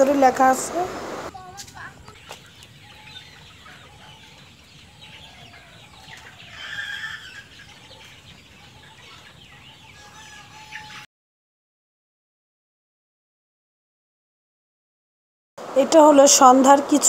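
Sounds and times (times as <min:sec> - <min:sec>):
chickens clucking and calling: 0:00.7 - 0:11.1.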